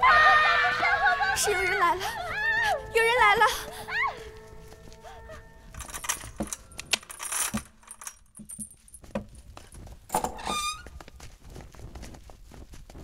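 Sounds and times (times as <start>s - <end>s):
chain rattling against metal gate: 5.7s - 10.9s.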